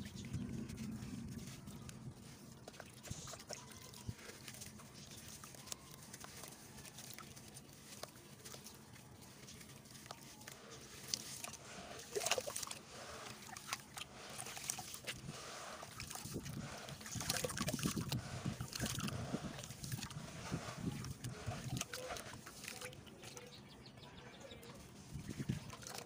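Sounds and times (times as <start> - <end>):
wet splashes and squelches: 0.0 - 23.6, 24.8 - 26.0.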